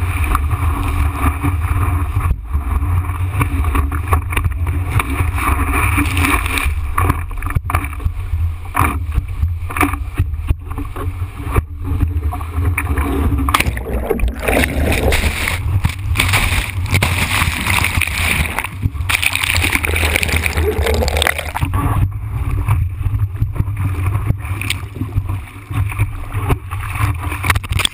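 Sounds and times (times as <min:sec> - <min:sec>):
water rushing over camera housing: 0:00.0 - 0:27.9
water splashes and knocks: 0:00.0 - 0:27.9.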